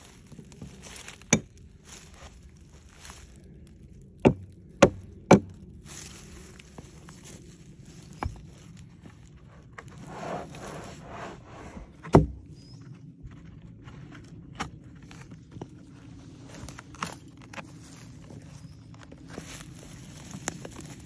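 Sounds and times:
axe striking a log: 4.2 - 5.6, 12.1 - 12.4
bark scraping and rustling: 6.0 - 12.1.

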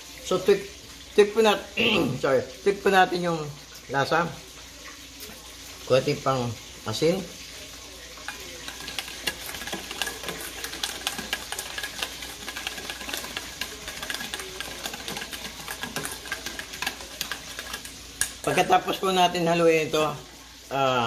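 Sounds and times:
whisk clicking in metal bowl: 8.2 - 19.4.

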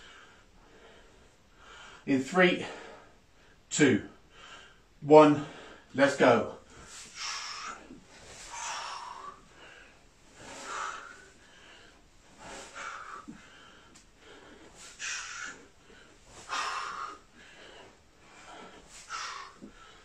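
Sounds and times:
man breathing quietly: 0.0 - 6.0, 6.6 - 20.0
man's hissing breaths: 6.6 - 20.0.

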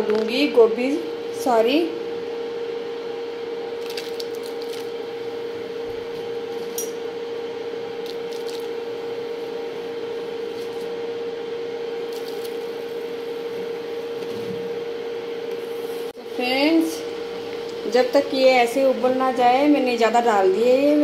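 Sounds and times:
induction cooktop hum: 0.0 - 21.0.

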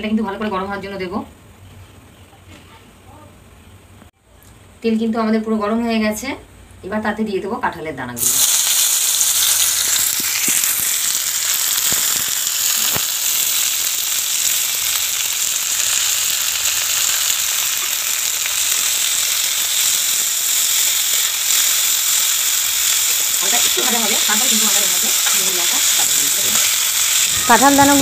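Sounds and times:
slices sizzling in hot oil: 8.2 - 28.0.

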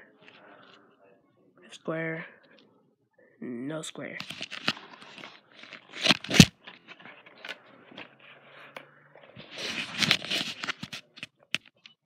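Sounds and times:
phone handling noise: 4.2 - 7.6
light scratching: 4.2 - 11.4
rustling and scraping: 4.2 - 11.8.

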